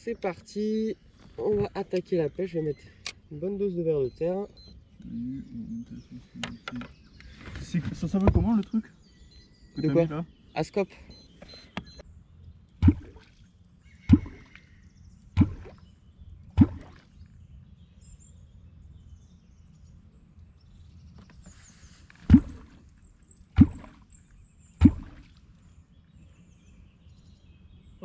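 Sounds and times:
wooden clonk plopping in water: 0:12.8 - 0:13.4, 0:14.1 - 0:14.6, 0:15.4 - 0:15.8, 0:16.6 - 0:17.1, 0:22.2 - 0:22.8, 0:23.6 - 0:24.0, 0:24.8 - 0:25.3.

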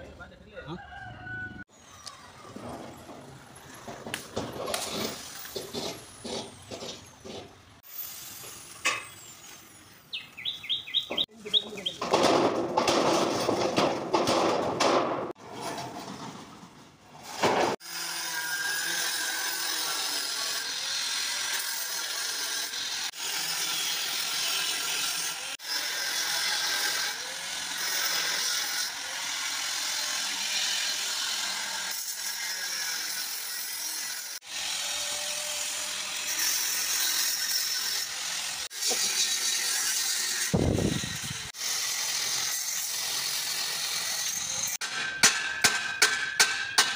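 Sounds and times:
angle grinder cutting steel: 0:07.8 - 0:10.8, 0:17.7 - 0:46.9.

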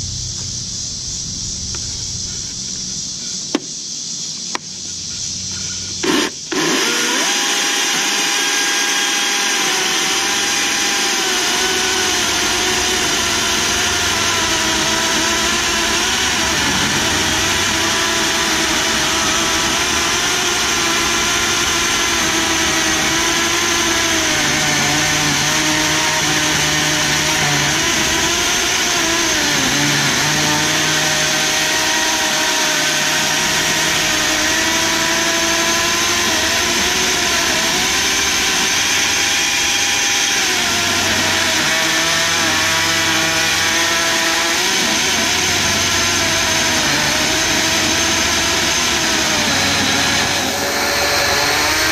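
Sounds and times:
electric chainsaw ripping log: 0:06.0 - 0:51.9.

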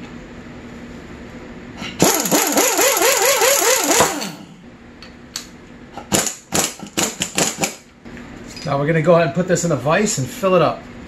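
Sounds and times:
air impact wrench hammering: 0:01.8 - 0:04.6, 0:06.0 - 0:07.9.

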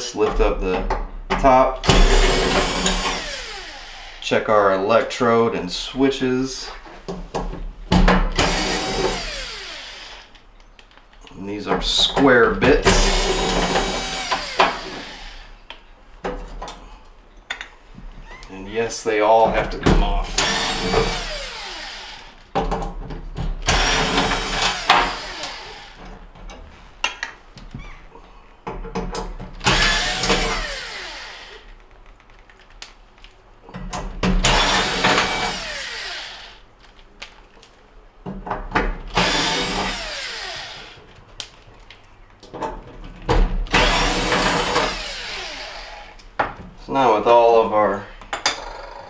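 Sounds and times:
cordless drill backing out screws: 0:12.9 - 0:15.5, 0:23.6 - 0:26.1, 0:29.6 - 0:31.8, 0:34.4 - 0:36.6, 0:39.1 - 0:41.1.

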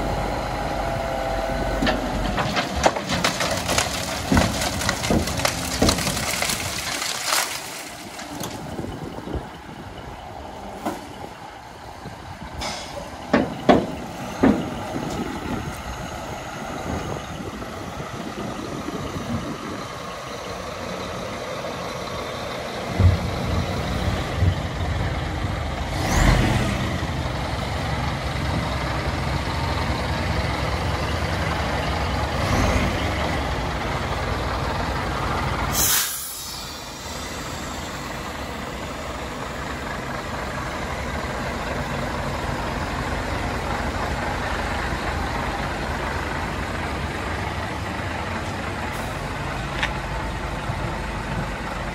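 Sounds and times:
clunks: 0:01.6 - 0:08.9, 0:12.6 - 0:15.8
diesel truck engine idling: 0:08.0 - 0:51.9
air hissing: 0:35.7 - 0:37.2.

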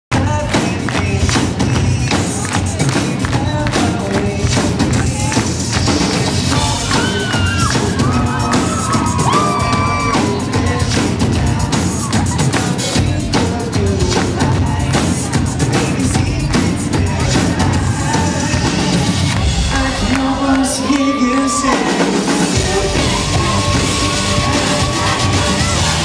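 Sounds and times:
drum beat: 0:00.1 - 0:26.0
live pop band: 0:00.1 - 0:26.0
singer on microphone: 0:00.1 - 0:26.0
crowd cheering: 0:00.3 - 0:26.0.

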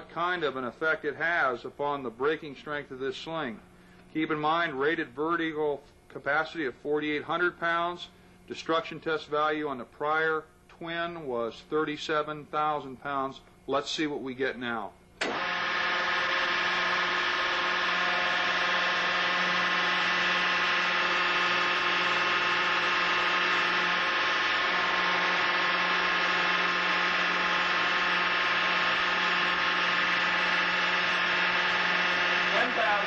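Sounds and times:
hydraulic pump hum and whine: 0:15.0 - 0:33.0.

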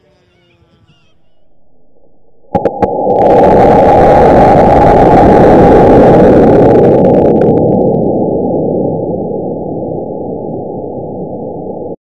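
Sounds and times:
dull rumble: 0:01.0 - 0:12.0
rocket motor roar: 0:02.5 - 0:09.7.

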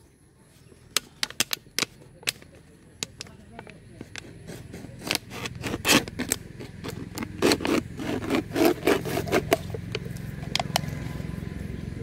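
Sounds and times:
knife cutting plastic bottle: 0:04.0 - 0:10.8.

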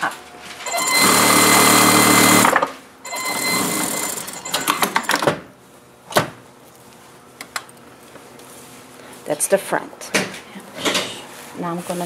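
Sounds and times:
sewing machine stitching: 0:00.7 - 0:05.2.

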